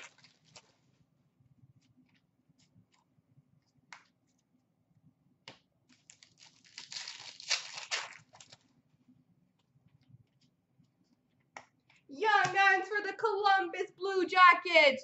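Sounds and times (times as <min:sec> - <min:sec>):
card wrapper tearing and crinkling: 0:00.0 - 0:00.7, 0:05.9 - 0:08.6.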